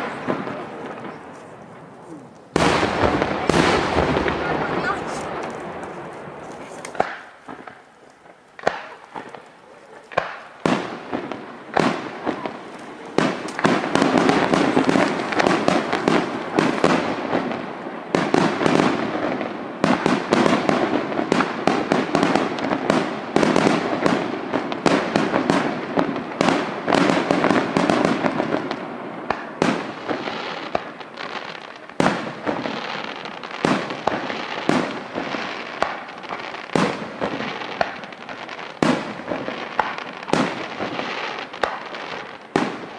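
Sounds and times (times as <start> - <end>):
firework shells bursting: 0.0 - 24.2
firework crackling: 0.0 - 42.9.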